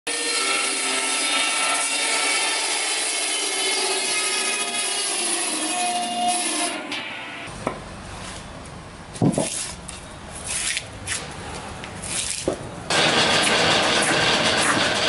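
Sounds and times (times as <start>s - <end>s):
circular saw cutting log: 0.1s - 7.4s, 12.0s - 15.0s.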